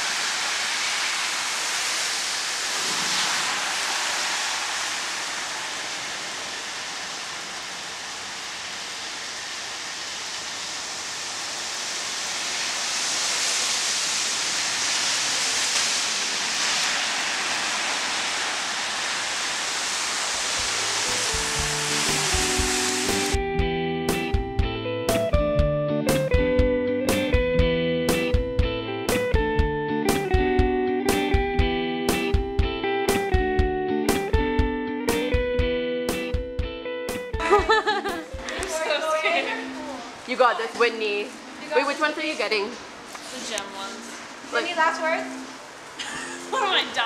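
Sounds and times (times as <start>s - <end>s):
car tyres through water: 0.0s - 23.4s
heavy rain: 0.0s - 23.4s, 37.3s - 47.0s
guitar music: 20.7s - 41.9s.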